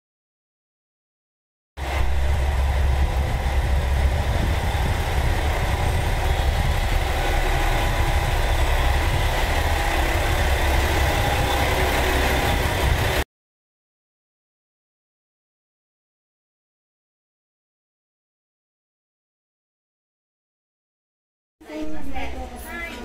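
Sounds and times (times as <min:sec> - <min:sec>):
diesel engine idling: 0:01.8 - 0:13.2.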